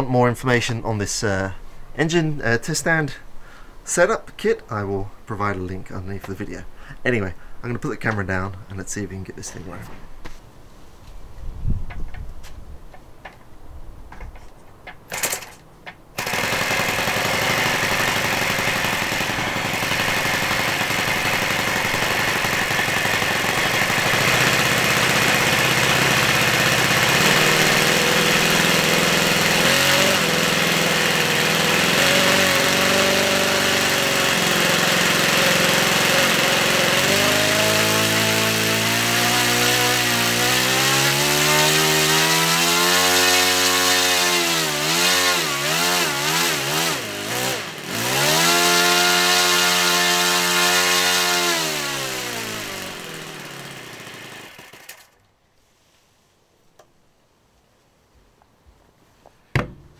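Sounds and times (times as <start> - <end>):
model engine running: 16.2 - 55.2.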